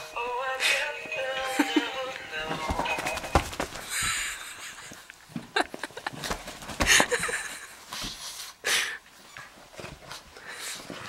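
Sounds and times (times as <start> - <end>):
plush toy knocks and rustles: 2.6 - 3.9.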